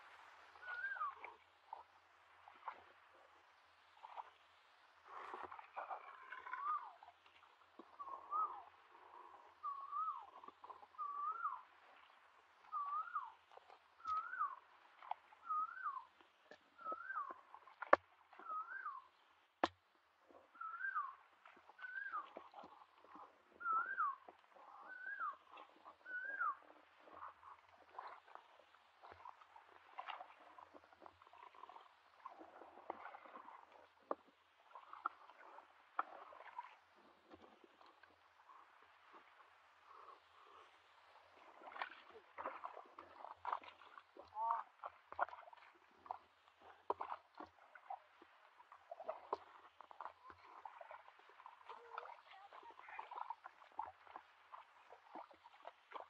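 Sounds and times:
bird whistling call: 0:00.6 - 0:01.2, 0:08.0 - 0:08.6, 0:09.6 - 0:10.2, 0:11.0 - 0:11.6, 0:12.7 - 0:13.3, 0:14.0 - 0:14.6, 0:15.4 - 0:16.1, 0:16.8 - 0:17.3, 0:18.4 - 0:19.1, 0:20.6 - 0:21.2, 0:21.8 - 0:22.3, 0:23.6 - 0:25.4, 0:26.0 - 0:26.6
squelching in mud and water: 0:04.0 - 0:56.0.

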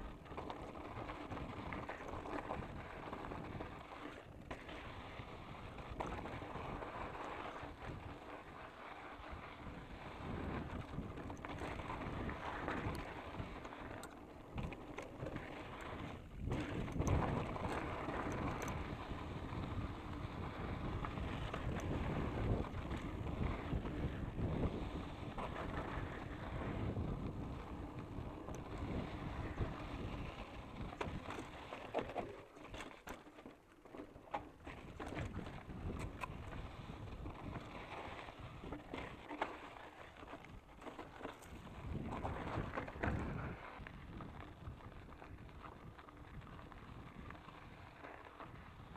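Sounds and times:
bike rattling over bumps: 0:00.0 - 0:48.9
bike tyres crunching over gravel: 0:00.0 - 0:48.9
wind on microphone: 0:14.6 - 0:32.0, 0:34.7 - 0:39.2, 0:41.4 - 0:48.9.

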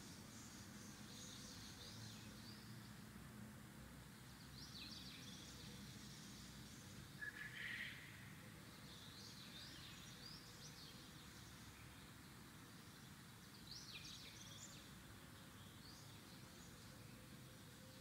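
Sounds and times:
faint room hiss: 0:00.0 - 0:18.0
faint high bird chirps: 0:07.2 - 0:08.2.

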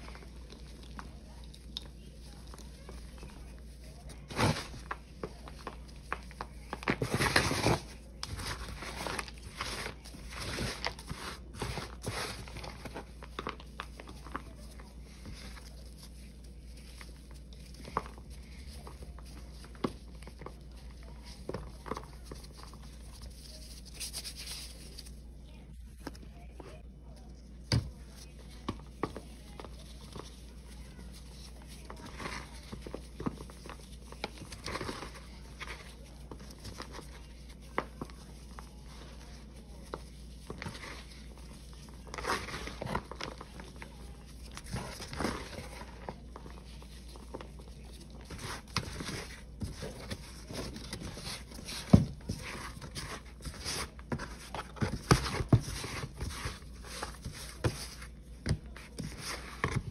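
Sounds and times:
chalky powder crunching and crackling: 0:00.0 - 0:59.9.

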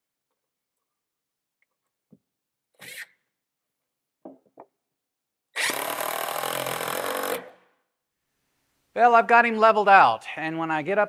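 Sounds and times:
cordless drill driving screw into wood: 0:05.5 - 0:07.6.

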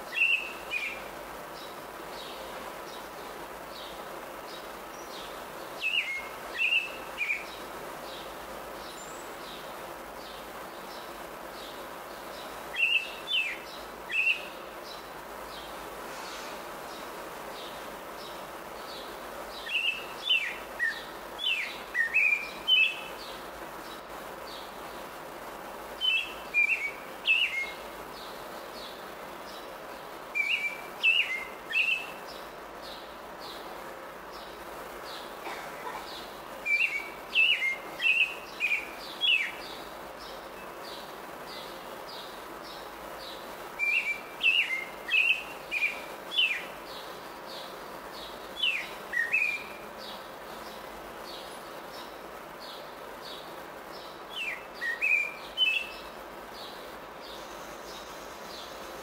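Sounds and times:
robin singing: 0:00.0 - 0:15.8, 0:16.8 - 0:25.0, 0:26.0 - 0:59.0.

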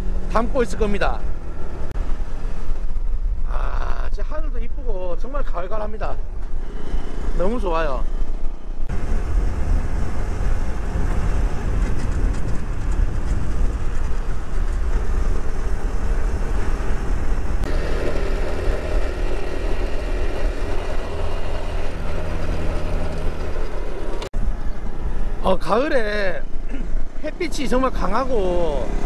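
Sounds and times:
wind rumble on microphone: 0:08.1 - 0:25.7
motorcycle engine running: 0:08.3 - 0:24.3.

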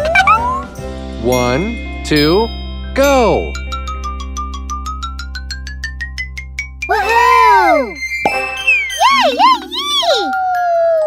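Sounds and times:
background music: 0:00.0 - 0:11.0
wavering swooping tone: 0:07.0 - 0:10.4.

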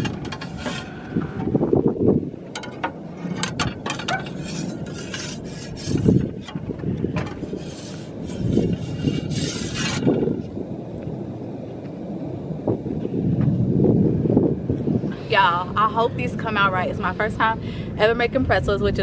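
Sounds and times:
metal scraping on stone: 0:00.0 - 0:01.2, 0:02.6 - 0:10.3
wind rumbling on microphone: 0:00.0 - 0:19.0.

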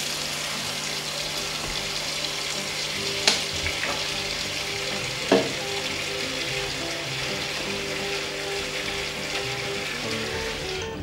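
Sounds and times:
tap running into steel sink: 0:01.3 - 0:10.7
sharp knocks: 0:05.3 - 0:05.6.

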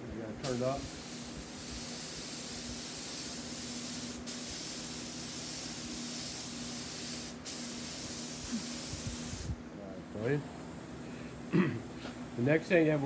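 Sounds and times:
paint spray gun hissing: 0:00.4 - 0:10.8.

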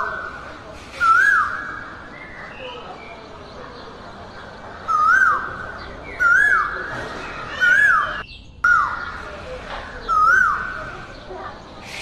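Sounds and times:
bird calling: 0:04.7 - 0:09.3, 0:10.0 - 0:11.0.

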